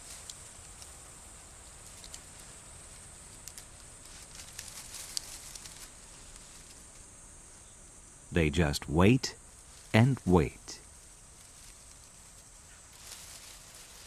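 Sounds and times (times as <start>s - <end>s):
scattered ticks: 0.0s - 7.1s
rustling in dry leaves: 0.0s - 7.2s, 9.4s - 10.0s, 10.8s - 14.0s
steady high hiss: 0.0s - 14.0s.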